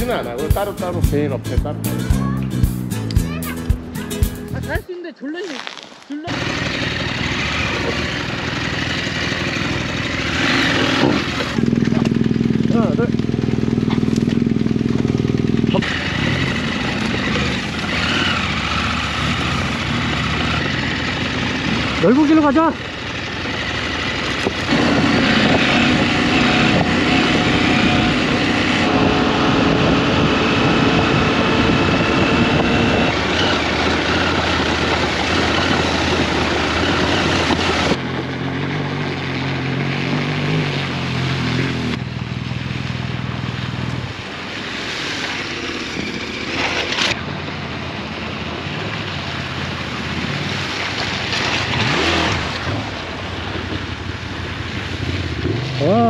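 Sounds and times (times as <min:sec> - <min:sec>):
motorcycle engine running: 0:00.0 - 0:04.8, 0:06.2 - 0:56.0
wind noise on microphone: 0:24.7 - 0:38.0.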